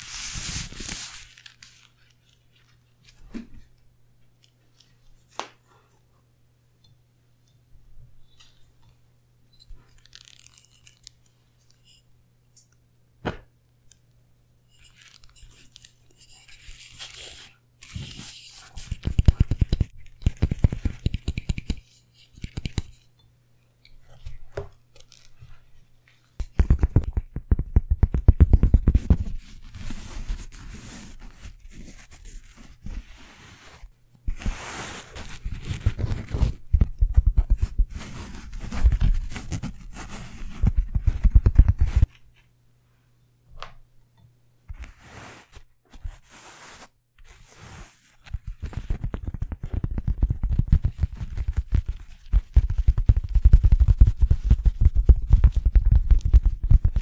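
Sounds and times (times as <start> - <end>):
hand scratching coarse fibre mat: 0.0 - 1.8, 28.8 - 36.6, 37.5 - 42.1, 44.8 - 49.1.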